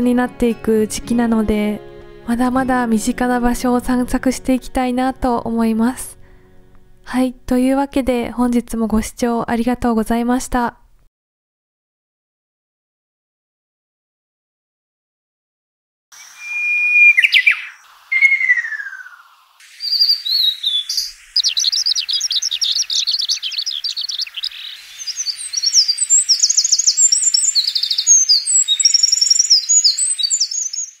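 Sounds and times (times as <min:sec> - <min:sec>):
high bird trills and twittering: 0:16.2 - 0:31.0
songbirds singing: 0:16.2 - 0:31.0
whistled bird phrases: 0:16.2 - 0:31.0.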